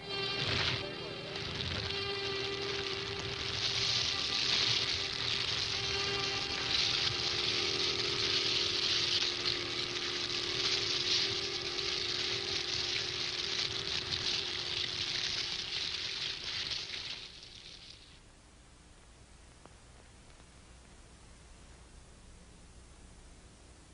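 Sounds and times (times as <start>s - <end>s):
bonfire flames crackling: 0.0s - 18.2s.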